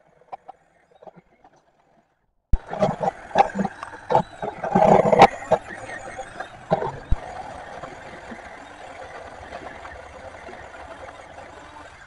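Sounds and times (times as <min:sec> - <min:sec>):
electric chainsaw cutting wood: 0:02.6 - 0:12.0.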